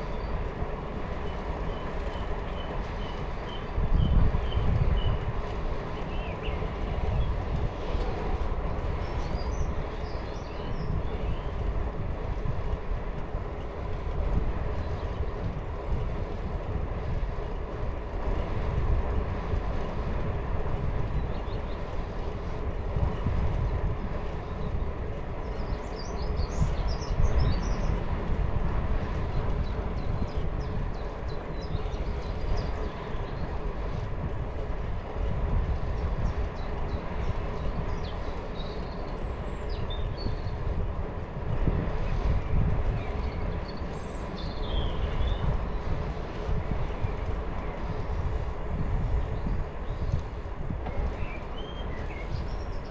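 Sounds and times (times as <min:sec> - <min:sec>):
bicycle tyres rolling on path: 0:00.0 - 0:52.9
wind on microphone: 0:00.0 - 0:52.9
birds chirping: 0:36.0 - 0:40.7, 0:42.6 - 0:52.9.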